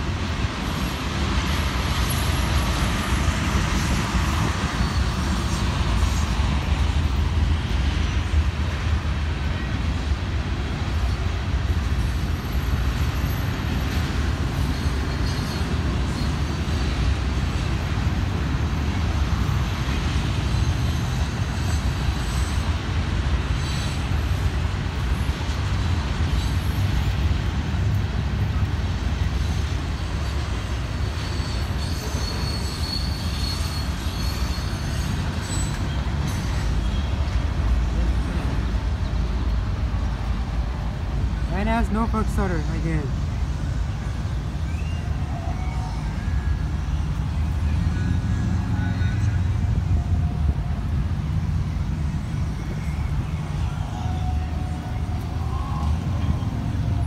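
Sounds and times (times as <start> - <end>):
train wheels rumbling on rail: 0.0 - 57.0
faint wheel squeal: 14.5 - 17.2, 20.4 - 22.8, 23.5 - 24.4, 29.5 - 37.4, 44.0 - 49.4.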